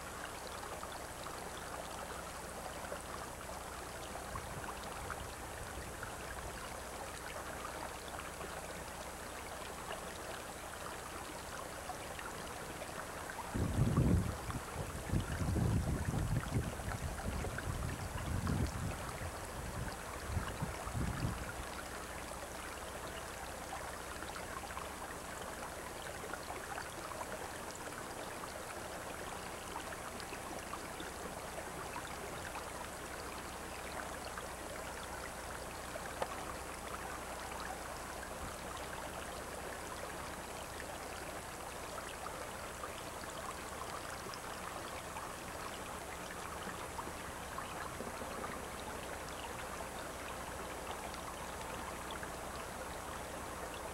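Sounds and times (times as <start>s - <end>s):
wind buffeting microphone: 13.5s - 21.4s.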